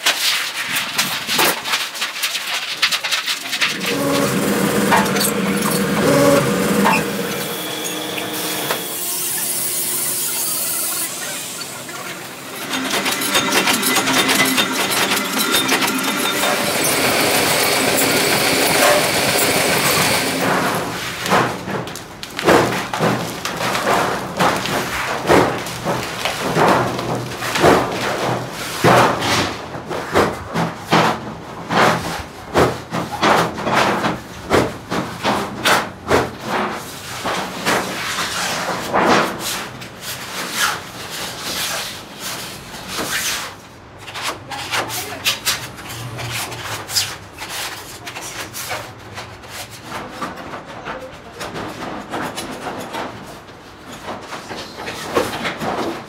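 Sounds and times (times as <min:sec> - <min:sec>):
metal scraping: 0:02.9 - 0:21.6
sheet metal clanking: 0:03.4 - 0:21.8
steady machine noise: 0:03.4 - 0:28.4.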